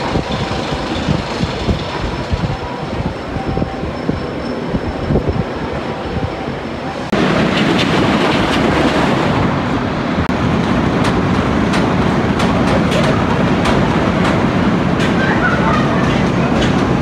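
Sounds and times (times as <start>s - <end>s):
wooden roller coaster rumbling: 0.0s - 17.0s
sharp clacks: 10.6s - 15.3s.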